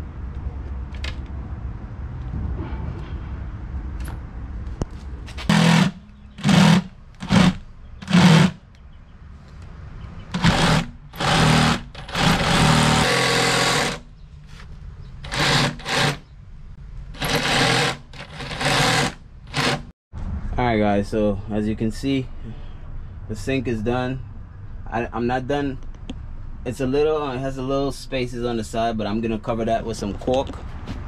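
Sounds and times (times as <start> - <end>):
power saw cutting plywood: 5.4 - 8.6, 10.3 - 14.1, 15.2 - 16.2, 17.2 - 19.9.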